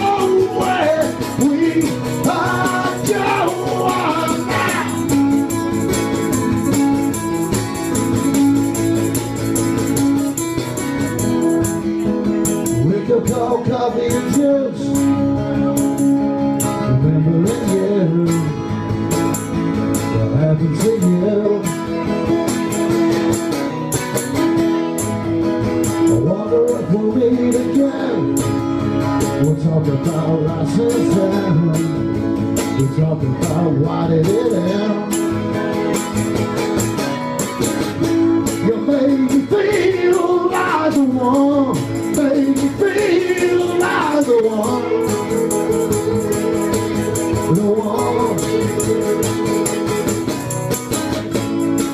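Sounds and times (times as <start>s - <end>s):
man singing: 0.0s - 5.2s, 12.7s - 18.7s, 20.1s - 22.2s, 26.1s - 28.6s, 29.2s - 35.4s, 38.4s - 50.3s
acoustic guitars strumming: 0.0s - 51.9s.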